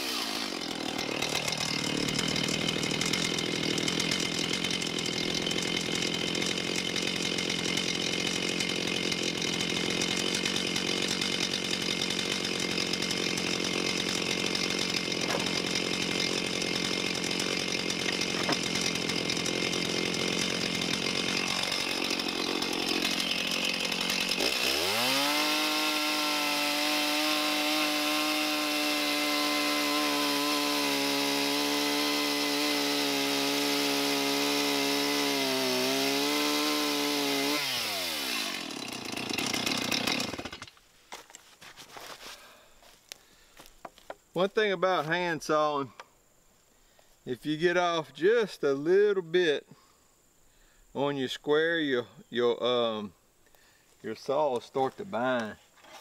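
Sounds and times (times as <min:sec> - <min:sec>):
chainsaw idling and revving: 0:00.0 - 0:40.8, 0:54.3 - 0:55.5.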